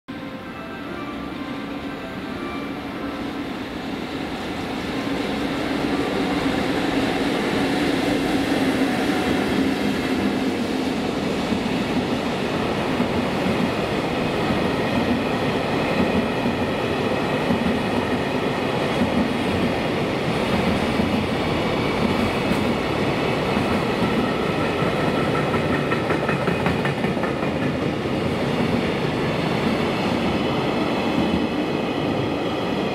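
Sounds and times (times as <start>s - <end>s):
freight train passing: 0.1s - 32.9s.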